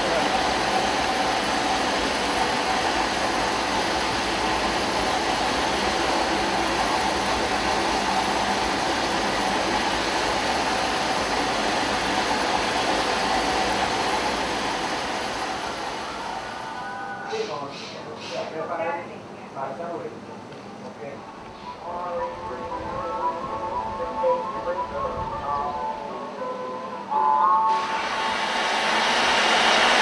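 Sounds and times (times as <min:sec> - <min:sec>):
steam locomotive hissing: 0:00.0 - 0:18.6, 0:27.1 - 0:30.0.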